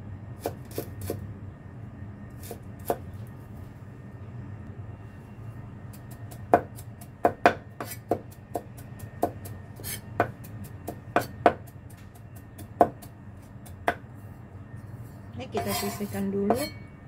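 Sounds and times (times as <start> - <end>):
knife chopping on wooden board: 6.5 - 11.7.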